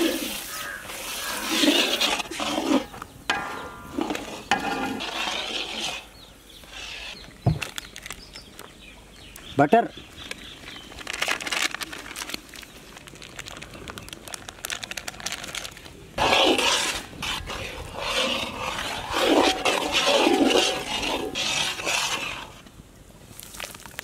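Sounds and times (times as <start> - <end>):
metal ladle scraping gravy in pan: 0.0 - 7.2, 16.2 - 22.7.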